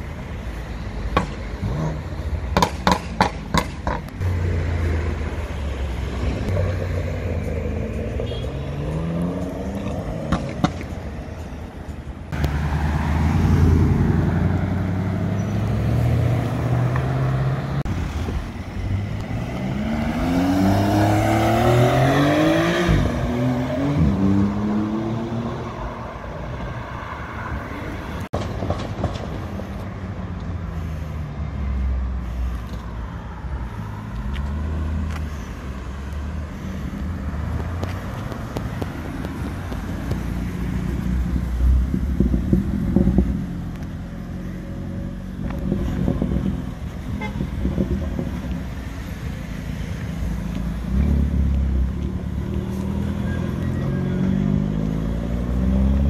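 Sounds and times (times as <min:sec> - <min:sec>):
cars driving past: 0:00.0 - 0:56.0.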